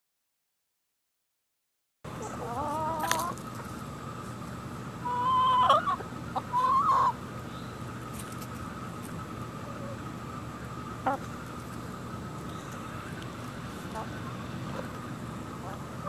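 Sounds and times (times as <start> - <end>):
chickens squawking: 2.1 - 8.0, 9.5 - 16.0.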